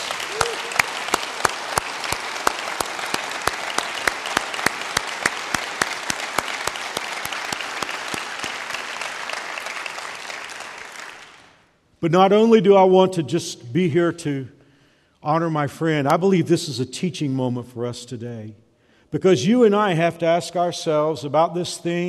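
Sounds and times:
close hands clapping: 0:00.0 - 0:11.7
crowd applauding: 0:00.0 - 0:11.7.

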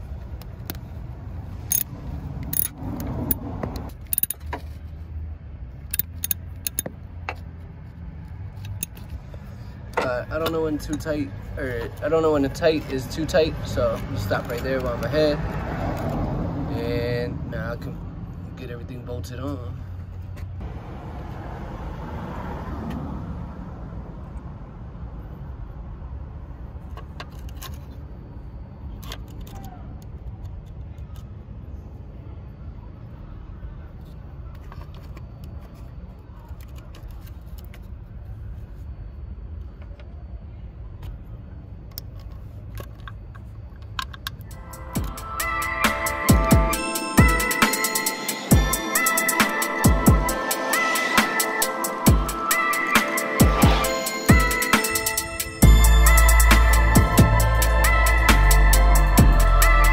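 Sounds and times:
ratchet clicking: 0:01.7 - 0:04.5, 0:05.9 - 0:06.9
steady low rumble: 0:48.4 - 0:59.9.

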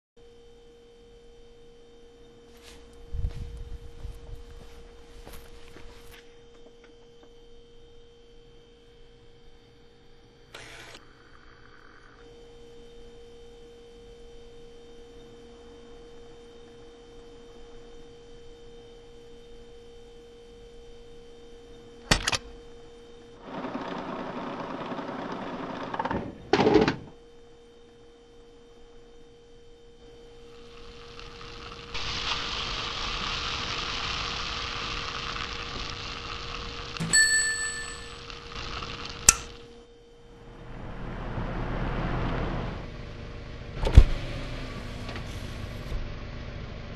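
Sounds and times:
vending machine electric hum: 0:00.2 - 0:46.9
low hiss: 0:30.2 - 0:39.6
bright bell-like chime: 0:37.0 - 0:38.2.

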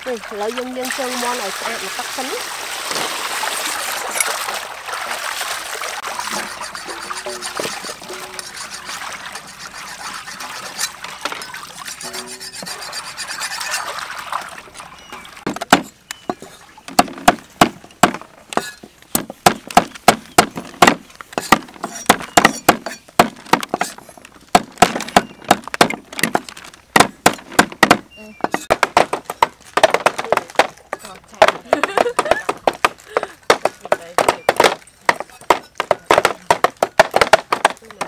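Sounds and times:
water splashing in metal basin: 0:00.0 - 0:16.9
cleavers chopping on wooden boards: 0:15.4 - 0:38.0.

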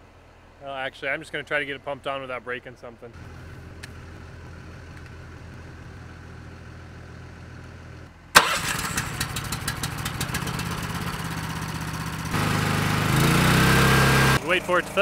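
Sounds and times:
low engine hum: 0:03.2 - 0:15.0
small gasoline pump engine running: 0:08.4 - 0:15.0.

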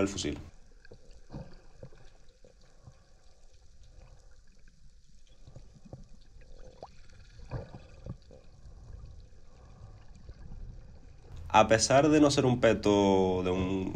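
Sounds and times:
low underwater rumble: 0:03.9 - 0:13.9.

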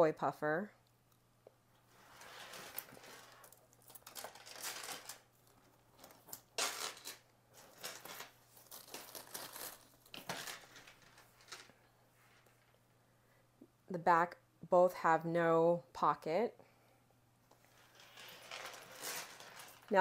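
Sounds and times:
leather bags rustling: 0:02.4 - 0:11.6, 0:17.8 - 0:20.0.

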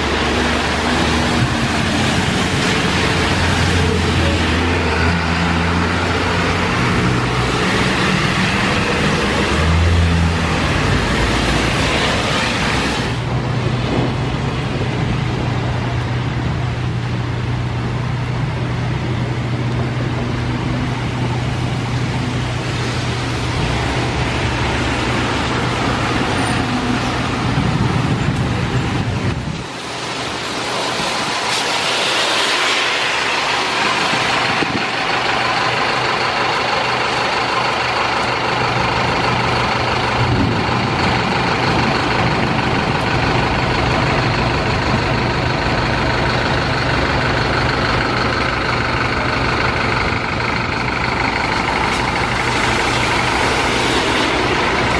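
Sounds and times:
bus engine close by: 0:00.0 - 0:54.9
road traffic passing: 0:00.0 - 0:54.9
hiss of passing vehicle: 0:29.7 - 0:43.7, 0:48.8 - 0:54.9.

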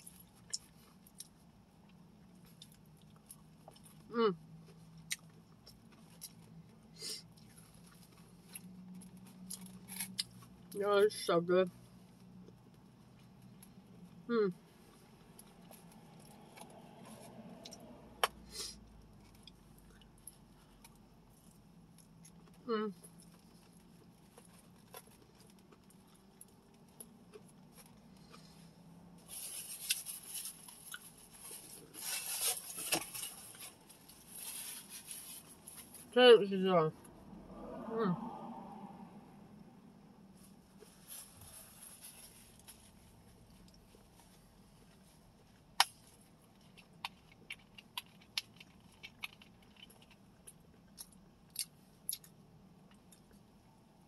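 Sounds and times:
low steady hum: 0:00.0 - 0:54.0
crinkly rustling of container: 0:29.2 - 0:36.2.

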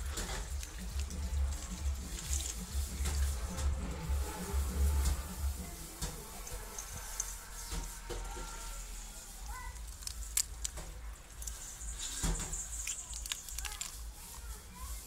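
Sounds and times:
wet handling noises: 0:00.0 - 0:04.4, 0:08.9 - 0:15.0
low steady rumble: 0:00.0 - 0:14.2.

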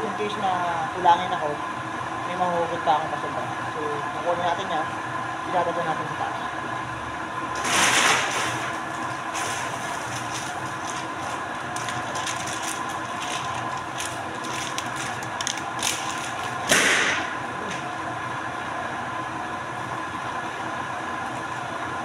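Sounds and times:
machine hum: 0:00.0 - 0:22.0
paper crackling and rustling: 0:07.6 - 0:16.7.

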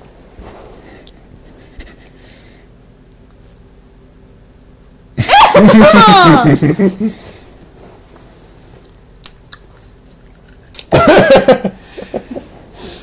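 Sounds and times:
loud voiced outburst: 0:05.3 - 0:06.6
chewing and mouth clicks: 0:08.9 - 0:10.9.

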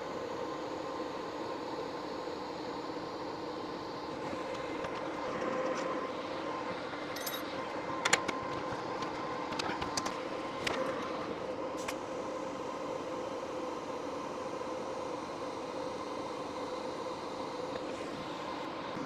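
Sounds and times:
sharp metal clinks: 0:07.2 - 0:07.4.

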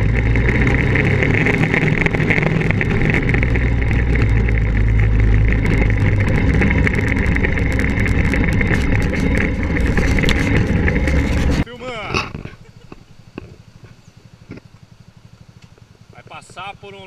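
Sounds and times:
knocks and rattles: 0:00.0 - 0:11.6
buggy engine running hard: 0:00.0 - 0:17.0.

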